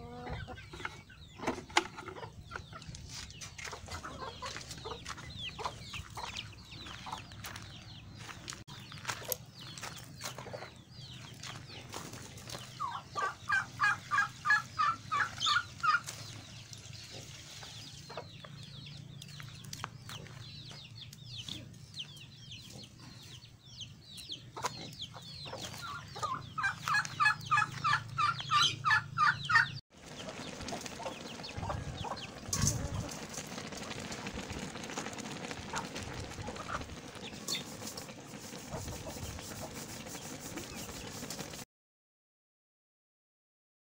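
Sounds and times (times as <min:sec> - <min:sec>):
chicken clucking: 0:00.0 - 0:08.3, 0:08.9 - 0:19.0, 0:20.0 - 0:34.0, 0:35.7 - 0:41.2.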